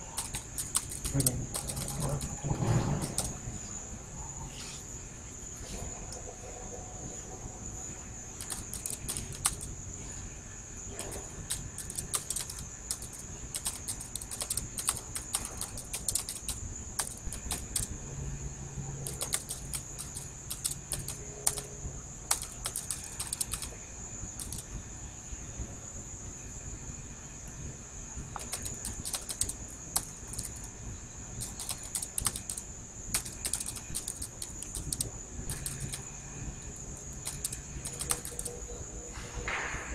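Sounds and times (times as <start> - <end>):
computer keyboard typing: 0.0 - 3.4, 8.4 - 9.8, 11.0 - 17.9, 19.0 - 24.7, 28.4 - 30.7, 31.4 - 36.1, 37.0 - 38.6.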